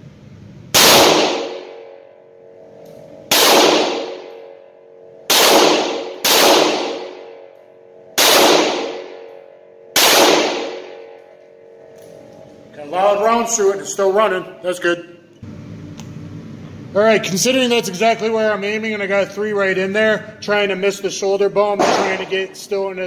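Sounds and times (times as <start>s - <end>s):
revolver shots echoing indoors: 0.0s - 12.7s, 21.6s - 22.6s.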